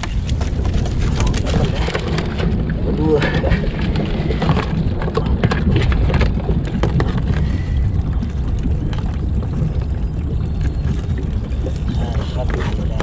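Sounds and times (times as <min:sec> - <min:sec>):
net clicking and rustling against hull: 0:00.0 - 0:09.0
steady low rumble: 0:00.0 - 0:13.0.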